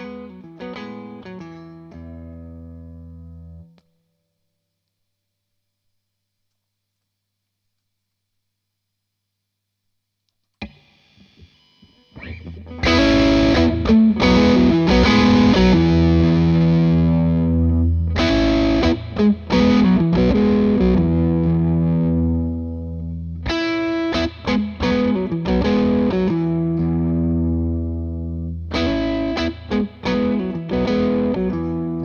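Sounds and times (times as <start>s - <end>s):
distorted electric guitar chords: 0.0s - 3.8s, 10.6s - 32.0s
picked electric guitar notes: 0.0s - 3.8s, 10.6s - 32.0s.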